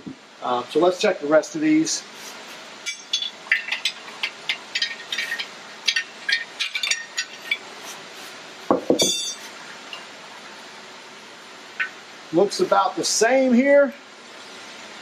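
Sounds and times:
metal knock with ring: 0:08.7 - 0:09.4.

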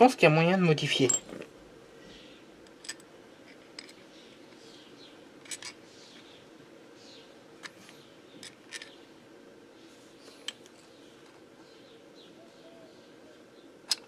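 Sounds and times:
low steady hum: 0:00.0 - 0:14.0
steel tools clinking: 0:00.9 - 0:01.4.

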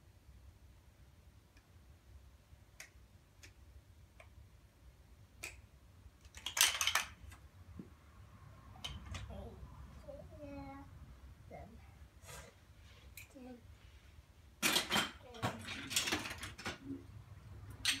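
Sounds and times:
plastic blocks clicking: 0:06.2 - 0:07.4, 0:14.6 - 0:16.8.

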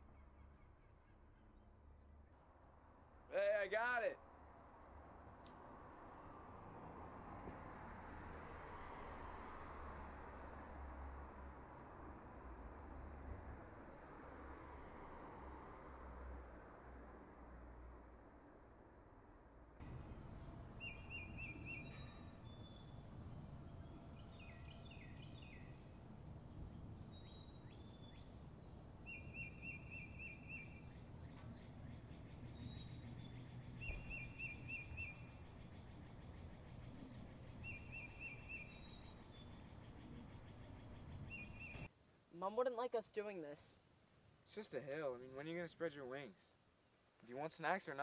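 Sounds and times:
bird chirps: 0:19.8 - 0:41.9
low steady rumble: 0:19.8 - 0:41.9
songbird trill: 0:19.8 - 0:41.9
high down-slurred whistles: 0:20.1 - 0:23.0, 0:33.8 - 0:35.3.

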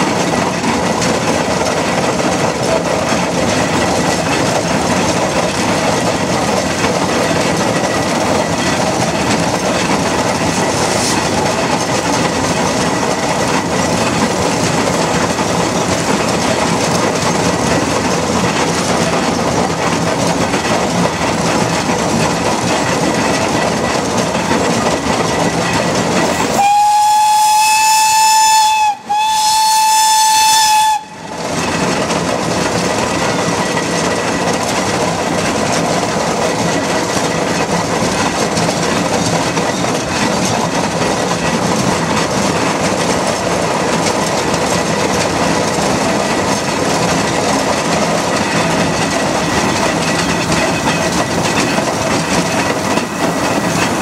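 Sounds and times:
steam roller rumbling: 0:00.0 - 0:54.0
steam whistle blasts: 0:26.5 - 0:31.4.

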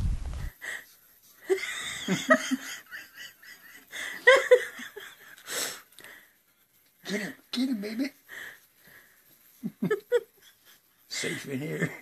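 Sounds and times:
low wind rumble: 0:00.0 - 0:00.5
person laughing: 0:01.4 - 0:05.4, 0:09.6 - 0:10.8.

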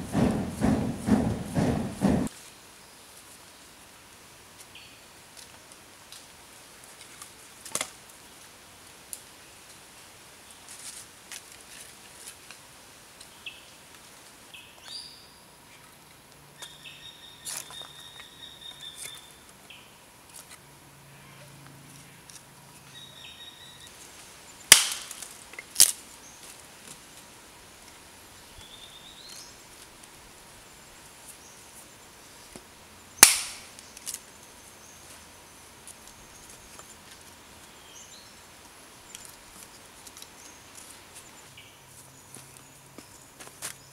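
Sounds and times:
wood sticks clacking: 0:33.2 - 0:33.8.

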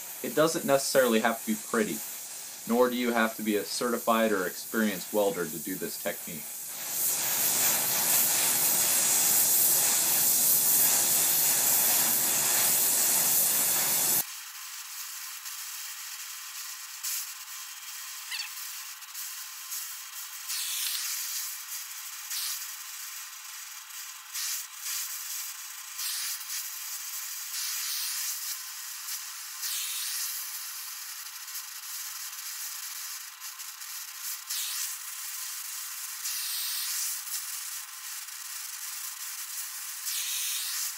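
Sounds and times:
torch flame hissing: 0:00.0 - 0:40.9.

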